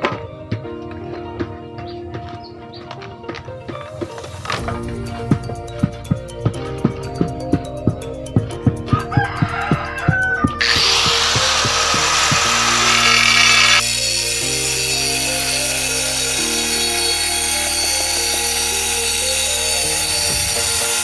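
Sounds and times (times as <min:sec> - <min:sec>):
background music with held chords: 0:00.0 - 0:21.0
angle grinder cutting tile: 0:10.6 - 0:21.0.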